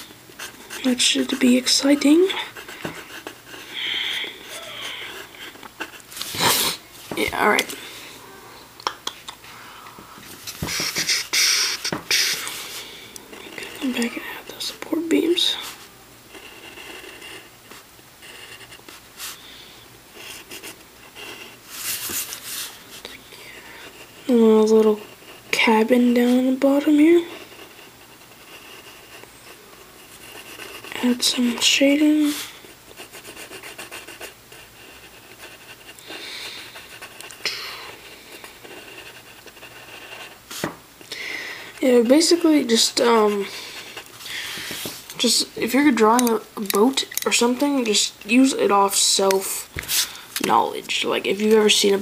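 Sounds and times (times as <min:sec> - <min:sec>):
pencil scratching on paper: 0:00.4 - 0:07.8, 0:10.5 - 0:12.8, 0:13.4 - 0:19.4, 0:23.6 - 0:40.8, 0:41.7 - 0:46.2
breathing close to microphone: 0:41.1 - 0:41.8, 0:43.4 - 0:45.0.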